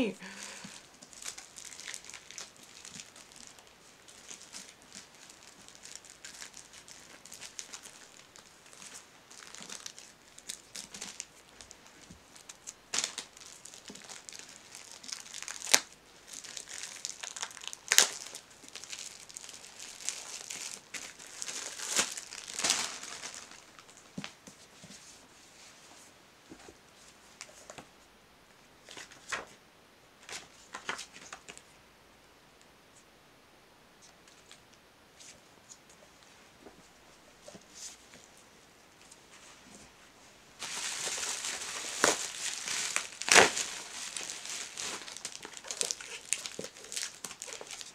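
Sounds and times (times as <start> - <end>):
plastic wrap crinkling and tearing: 0.3 - 24.4, 40.6 - 47.9
scissors cutting plastic wrap: 40.6 - 47.9.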